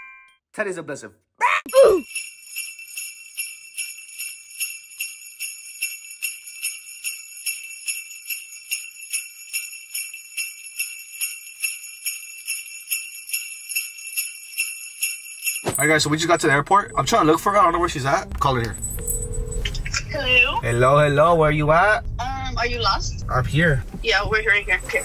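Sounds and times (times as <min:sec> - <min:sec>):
jingle bells shaken: 0:01.7 - 0:17.0.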